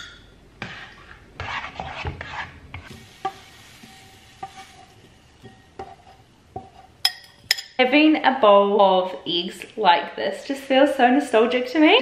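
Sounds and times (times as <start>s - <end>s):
utensil tapping pan: 0.0s - 7.8s
utensil scraping frying pan: 0.6s - 7.5s
faint sizzle: 2.8s - 7.1s.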